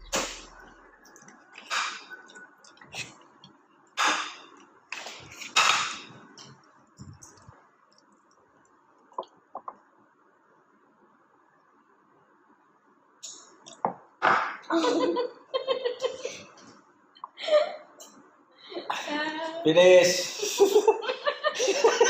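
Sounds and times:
slurping mouth noises: 0.0 - 5.7.

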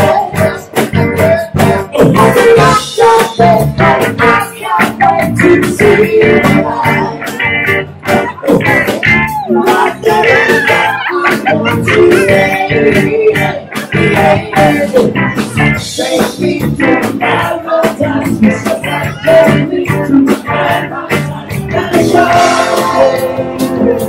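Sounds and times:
electric guitar: 0.0 - 24.0
person singing: 0.0 - 24.0
steady drum beat: 0.0 - 24.0.

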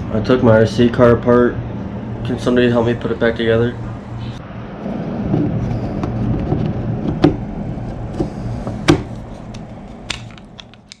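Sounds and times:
steady low hum: 0.0 - 11.0
plastic parts clicking and knocking: 10.1 - 11.0.

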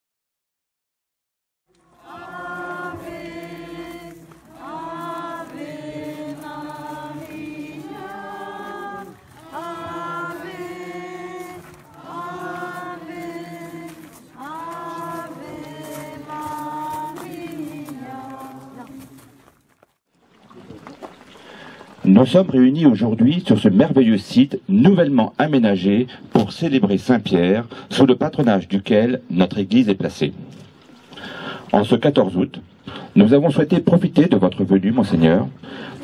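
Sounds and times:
group singing a slow hymn: 1.8 - 19.5, 35.6 - 36.0.

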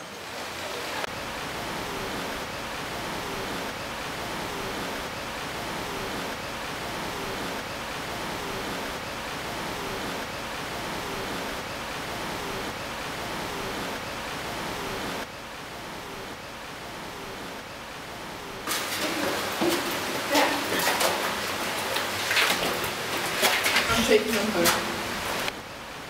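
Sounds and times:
loud broadband hiss: 0.0 - 26.0.

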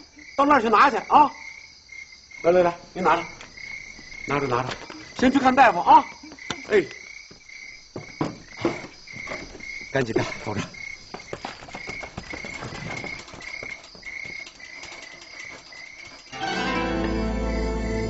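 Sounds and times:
crickets chirping: 0.0 - 18.0.

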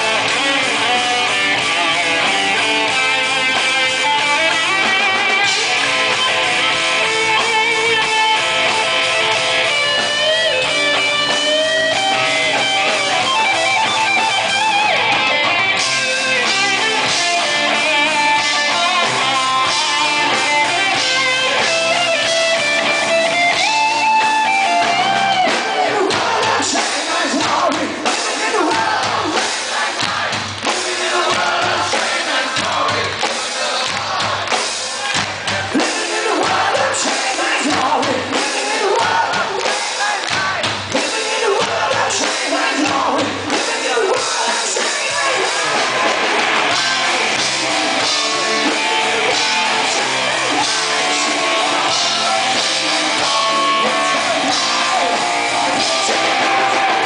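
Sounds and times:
electric guitar solo: 0.0 - 26.0
drums: 0.0 - 57.0
hard rock band playing live: 0.0 - 57.0.

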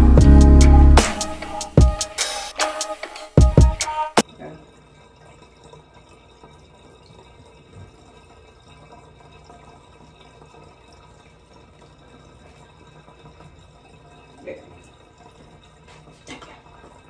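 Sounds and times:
water running from bathtub tap: 3.5 - 17.0.

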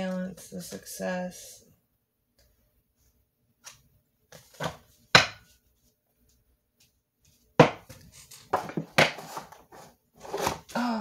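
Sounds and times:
sharp knocks on tabletop: 5.2 - 5.4.

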